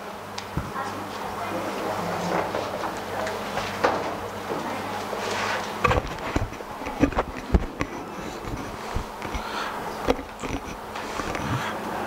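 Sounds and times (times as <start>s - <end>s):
low electrical buzz: 0.0s - 12.0s
microphone handling knocks and rubbing: 5.8s - 11.6s.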